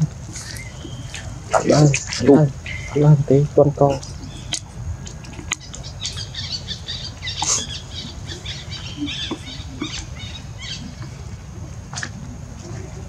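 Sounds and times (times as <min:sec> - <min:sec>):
low steady hum: 0:00.0 - 0:13.0
small birds chirping: 0:00.0 - 0:13.0.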